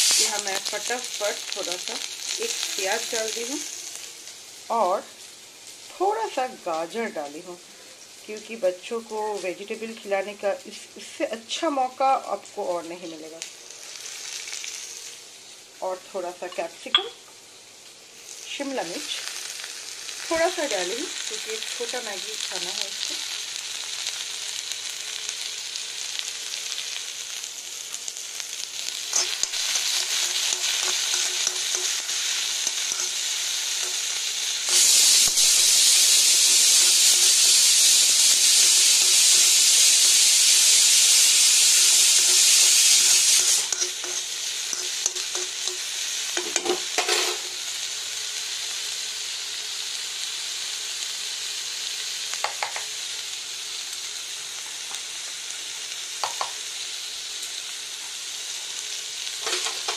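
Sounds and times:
vegetables sizzling in a pan: 0:00.0 - 0:59.9
spatula stirring: 0:29.1 - 0:34.2, 0:42.2 - 0:47.2
pressure cooker whistling: 0:34.6 - 0:45.8.

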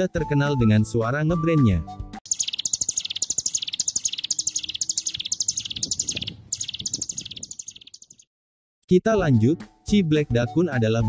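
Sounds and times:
bird singing rattling bursts: 0:02.3 - 0:08.3.

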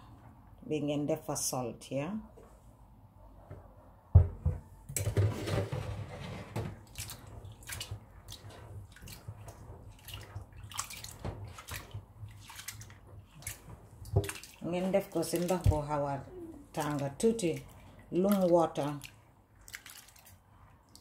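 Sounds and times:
plastic bowl knocking into steel sink: 0:04.1 - 0:05.8
hands rubbing beans in water: 0:06.7 - 0:21.0.

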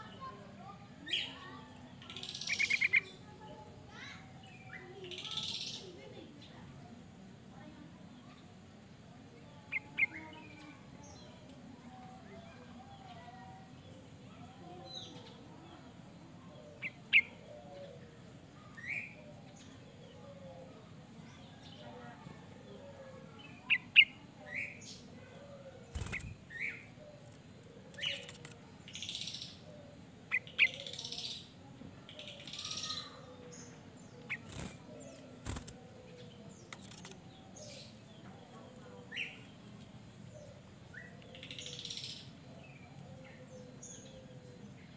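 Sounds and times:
bird chirping: 0:02.0 - 0:03.2, 0:30.3 - 0:31.4.

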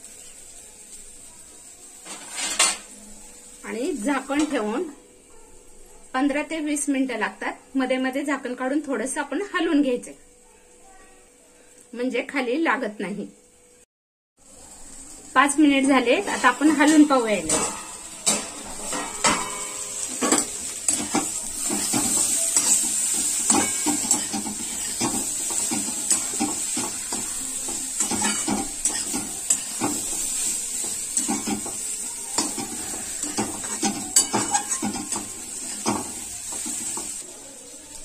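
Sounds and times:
frying sizzle: 0:00.0 - 0:38.0
metal spatula scraping a pan: 0:02.0 - 0:03.0, 0:15.9 - 0:37.2
steel lid clattering: 0:16.8 - 0:26.7.

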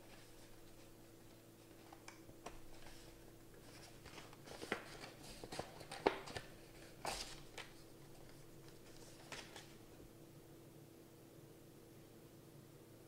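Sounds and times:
stiff paper rustling: 0:00.0 - 0:09.8.

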